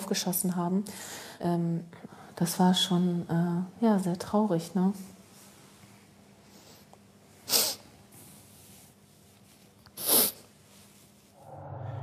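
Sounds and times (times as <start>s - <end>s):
woman sniffing sharply: 7.5s - 7.9s, 10.0s - 10.5s.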